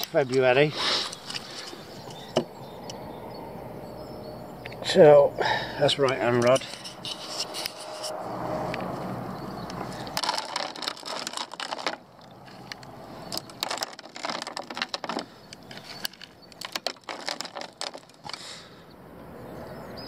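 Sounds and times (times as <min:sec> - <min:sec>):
pellets rattling onto plastic: 0:10.0 - 0:18.6.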